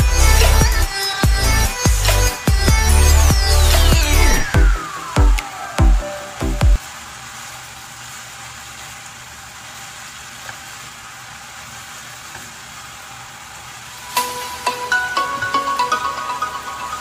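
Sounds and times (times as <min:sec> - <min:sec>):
electronic music beat: 0:00.0 - 0:06.8, 0:14.2 - 0:17.0
noodles sizzling in a hot pan: 0:04.2 - 0:17.0.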